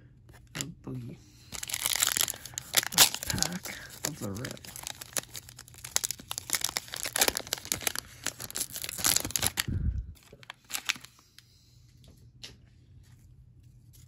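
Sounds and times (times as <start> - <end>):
foil wrapper tearing and crinkling: 1.5 - 9.7, 10.3 - 11.2.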